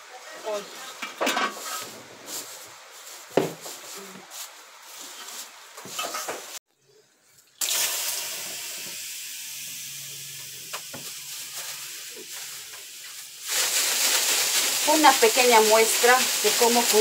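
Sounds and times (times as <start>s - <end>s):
steam hissing: 7.6s - 17.0s.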